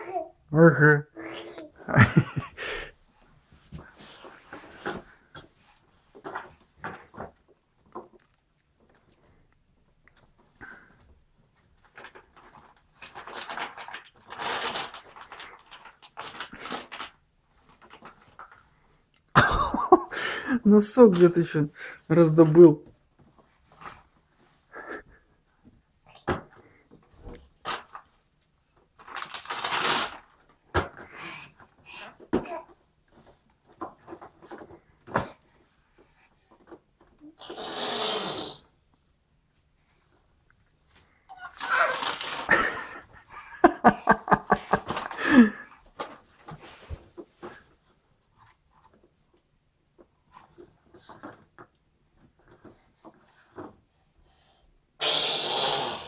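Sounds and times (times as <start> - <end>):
person's voice: 20.5 - 22.9.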